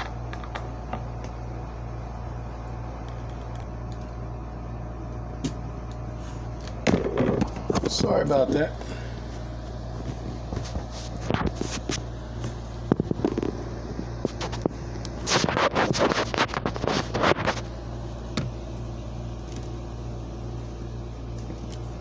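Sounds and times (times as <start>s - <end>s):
steady low hum: 0.0s - 22.0s
scraping and rattling on microphone: 10.0s - 17.7s.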